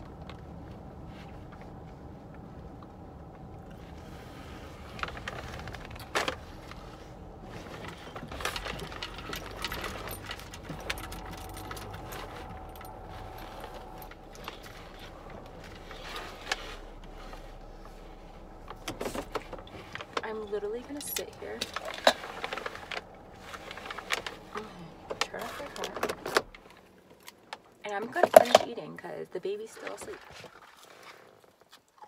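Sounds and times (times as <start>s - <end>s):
low car interior hum: 0.0s - 30.2s
clicks and rustling of handling: 3.6s - 28.8s
rattling: 3.6s - 28.8s.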